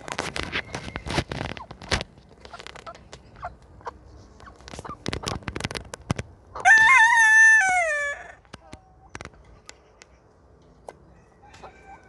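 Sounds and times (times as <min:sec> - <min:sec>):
rustles and clicks of foraging: 0:00.0 - 0:07.0
hens clucking softly: 0:08.5 - 0:12.0.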